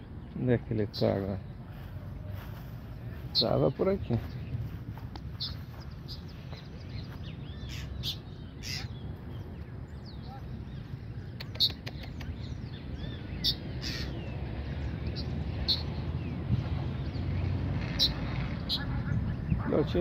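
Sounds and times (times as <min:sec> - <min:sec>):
steady low rumble: 0:00.0 - 0:20.0
bird alarm calls: 0:06.9 - 0:09.0, 0:10.1 - 0:14.4, 0:15.1 - 0:16.0, 0:17.8 - 0:19.0.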